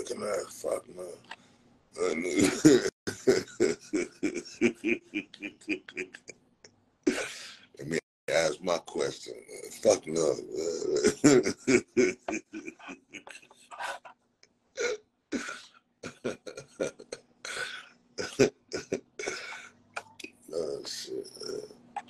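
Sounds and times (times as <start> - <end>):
man laughing hard: 2.1 - 6.3, 7.1 - 8.0, 10.6 - 14.0, 14.8 - 19.6.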